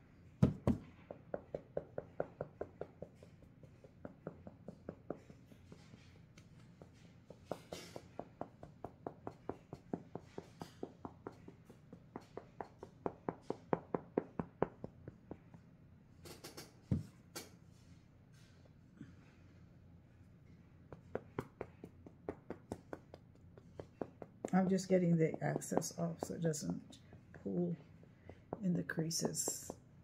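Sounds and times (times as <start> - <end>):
brush tapping soft taps: 20.4 - 29.8.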